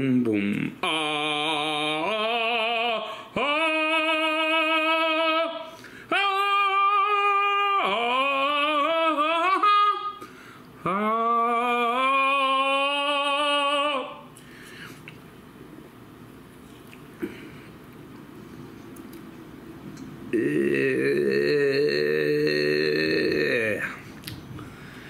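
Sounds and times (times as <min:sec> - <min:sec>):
man singing held wordless notes: 0:00.0 - 0:10.2, 0:10.8 - 0:14.3, 0:20.3 - 0:24.1.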